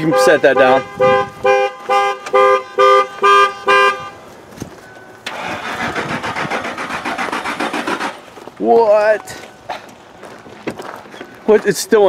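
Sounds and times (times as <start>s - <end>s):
car horn honking: 0.0s - 4.3s
car engine cranking: 1.0s - 10.1s.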